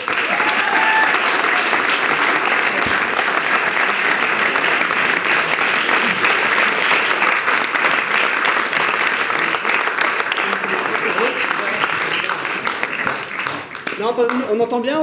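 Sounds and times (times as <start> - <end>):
audience applauding: 0.0 - 14.6.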